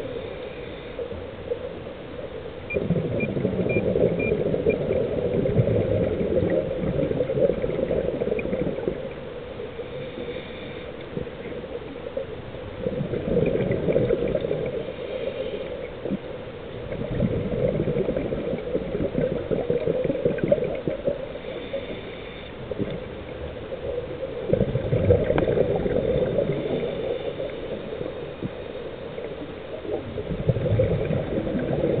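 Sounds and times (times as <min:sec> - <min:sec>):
exhaled bubbles gurgling underwater: 0:00.0 - 0:32.0
regulator inhalation hiss: 0:09.9 - 0:11.0, 0:21.4 - 0:22.5.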